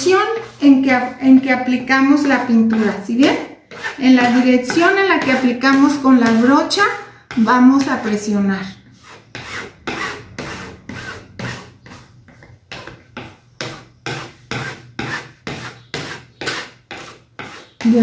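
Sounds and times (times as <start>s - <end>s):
spatula scraping on canvas: 0.0s - 18.0s.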